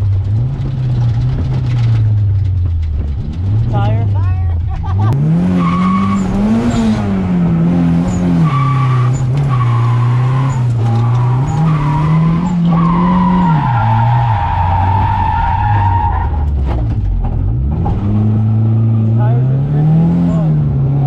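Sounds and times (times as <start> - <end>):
car engine revving: 0.0 - 21.0
tyres squealing: 8.1 - 16.4.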